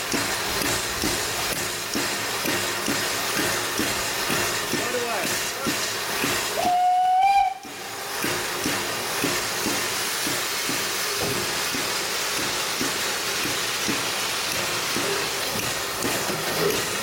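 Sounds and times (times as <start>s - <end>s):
steam engine hissing: 0.0s - 17.0s
steam whistle: 6.6s - 7.9s.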